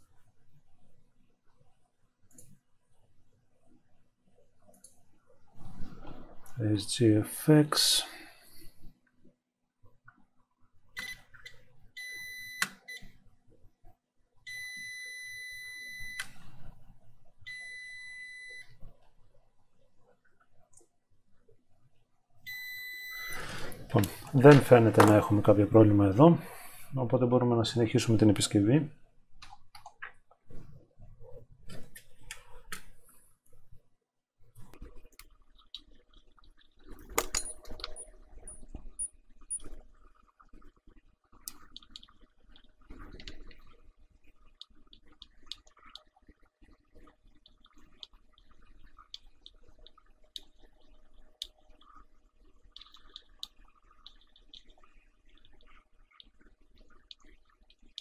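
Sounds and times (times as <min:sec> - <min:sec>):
multimeter continuity beeps: 0:11.0 - 0:11.3, 0:12.0 - 0:13.1, 0:14.5 - 0:16.3, 0:17.5 - 0:18.8, 0:22.5 - 0:24.2.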